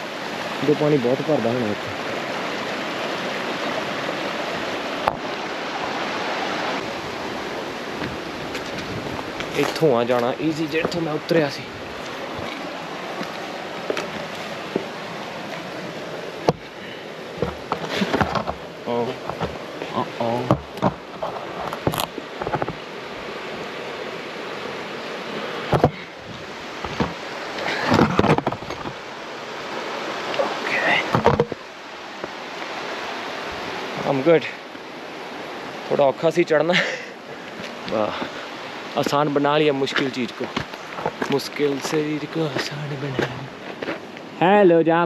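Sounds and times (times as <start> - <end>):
river water rushing: 0.0 - 45.0.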